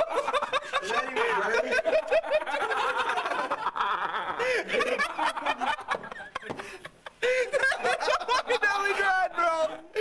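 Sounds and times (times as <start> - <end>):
men laughing hard: 0.0 - 10.0.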